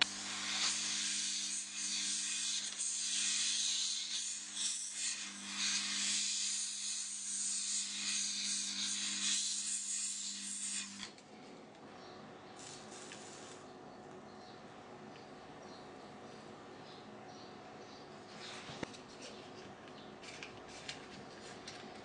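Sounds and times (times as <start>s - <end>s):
heat gun blowing air: 0.0s - 11.1s.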